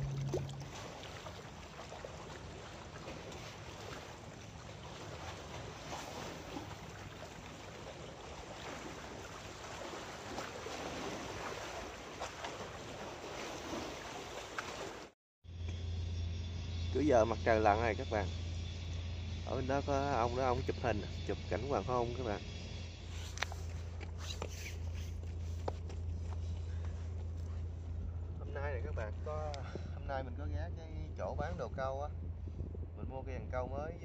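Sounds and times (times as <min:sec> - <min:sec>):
wind buffeting microphone: 0:30.8 - 0:34.0.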